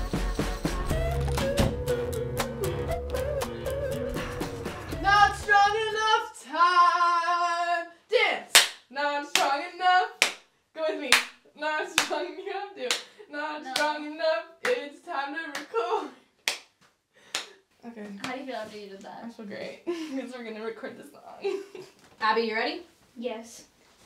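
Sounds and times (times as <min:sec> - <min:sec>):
music with bass line: 0:00.0 - 0:05.8
woman singing without words: 0:03.1 - 0:08.0, 0:08.9 - 0:10.2, 0:10.8 - 0:16.1
sharp hand claps: 0:08.5 - 0:09.5, 0:10.2 - 0:10.5, 0:11.1 - 0:11.4, 0:16.4 - 0:17.6.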